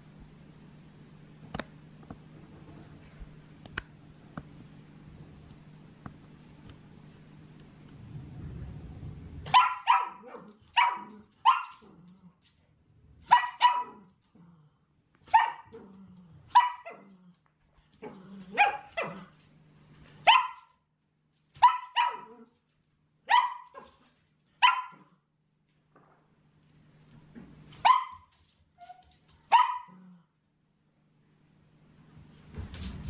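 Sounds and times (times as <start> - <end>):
puppy barking: 9.5 - 11.9, 13.3 - 14.1, 15.3 - 15.8, 16.5 - 17.1, 18.5 - 19.3, 20.2 - 20.8, 21.6 - 22.5, 23.3 - 24.0, 24.6 - 25.2, 27.8 - 28.3, 29.5 - 30.1.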